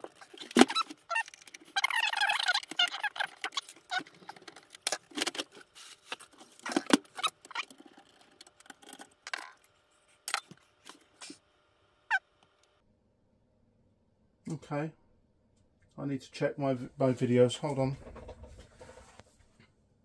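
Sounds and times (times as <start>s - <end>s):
clicks and scrapes: 0.0s - 11.4s.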